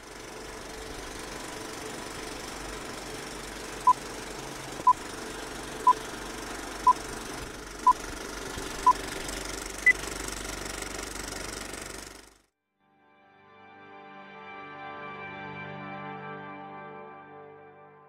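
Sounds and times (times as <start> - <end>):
film projector clatter and hiss: 0.0 - 12.5.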